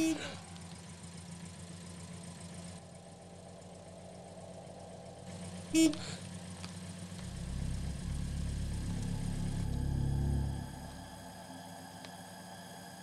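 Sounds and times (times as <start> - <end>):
car engine running: 0.0 - 12.5
car horn toot: 5.7 - 6.2.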